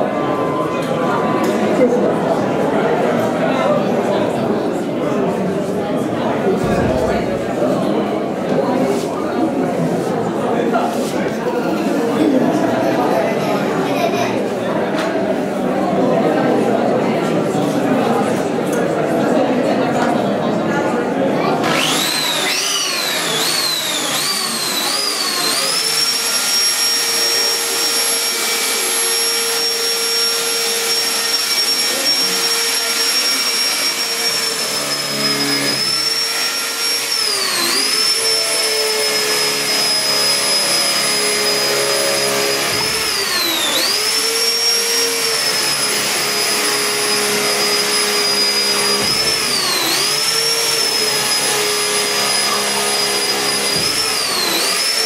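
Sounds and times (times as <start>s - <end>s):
electric drill whining: 21.6s - 55.0s.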